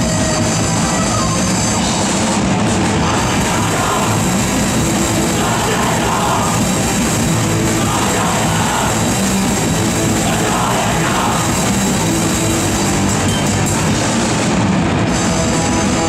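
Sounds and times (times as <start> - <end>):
distorted electric guitars: 0.0 - 16.0
drum kit pounding: 0.0 - 16.0
shouted vocals: 2.8 - 12.0.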